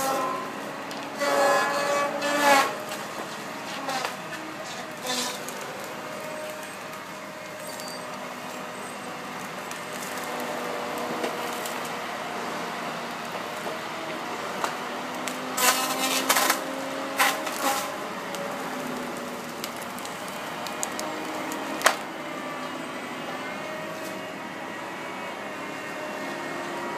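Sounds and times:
wood cracking and splintering: 0.0s - 12.2s, 13.2s - 22.1s
saw cutting through trees: 0.0s - 26.9s.

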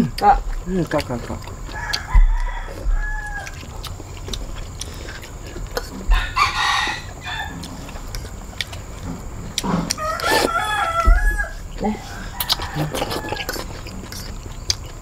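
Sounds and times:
chickens calling: 1.4s - 15.0s
rooster crowing: 1.7s - 3.7s, 6.1s - 7.9s, 9.9s - 13.9s.

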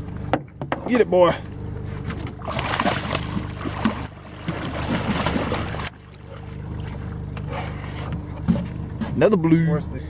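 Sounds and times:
fish thrashing and splashing: 2.0s - 8.0s.

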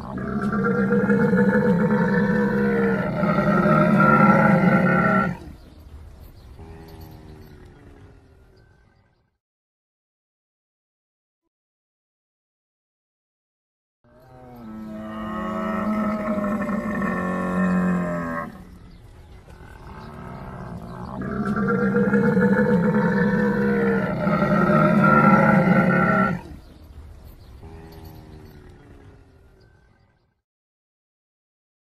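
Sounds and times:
camel groaning calls: 0.0s - 5.6s, 14.2s - 26.7s, 27.6s - 29.7s.

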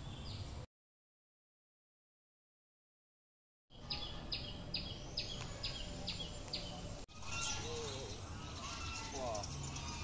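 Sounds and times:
outdoor background noise: 0.0s - 0.7s, 3.7s - 10.0s
bird calling: 3.7s - 10.0s.

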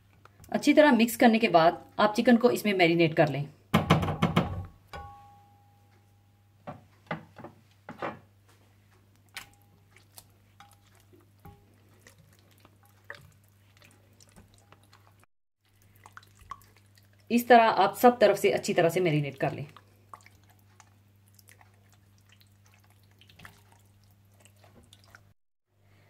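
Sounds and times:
hands squelching marinade: 9.1s - 25.4s.

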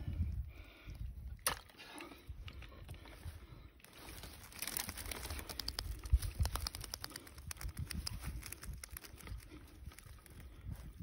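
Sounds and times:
wire net clicking and rustling: 4.0s - 10.6s.

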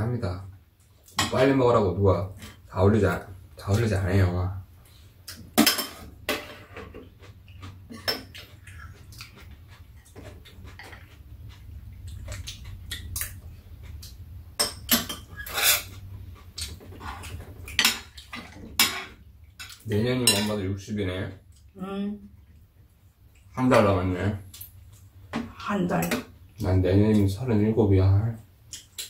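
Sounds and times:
low steady hum: 0.0s - 29.0s
utensils clinking against bowls: 16.6s - 20.6s.

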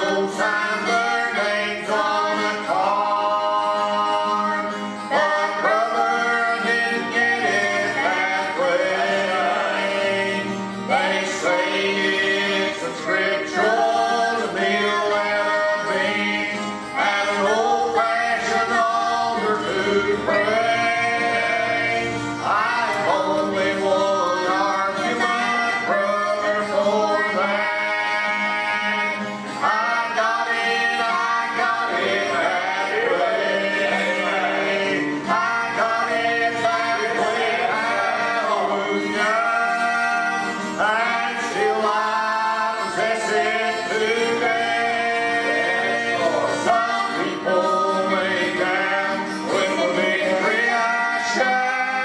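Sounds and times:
man and woman singing: 0.0s - 52.0s
strummed acoustic guitar: 0.0s - 52.0s.

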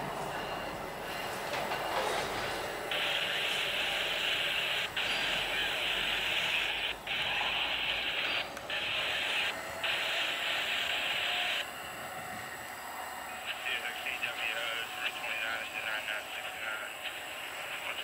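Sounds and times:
radio scanner static hiss: 2.9s - 11.7s, 13.4s - 18.0s.

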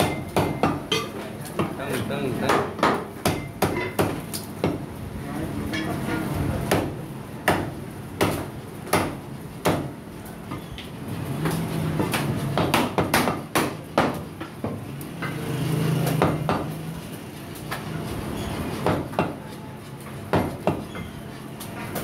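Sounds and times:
cleaver chopping meat: 0.0s - 0.9s, 6.7s - 10.0s, 12.0s - 14.8s, 16.0s - 16.8s, 20.3s - 21.1s.

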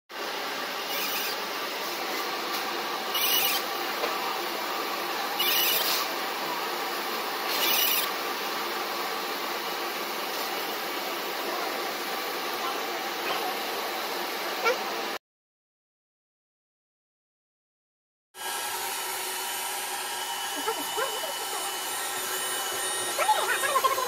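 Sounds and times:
laser machine humming: 3.1s - 6.1s, 6.7s - 8.2s, 19.1s - 24.0s.

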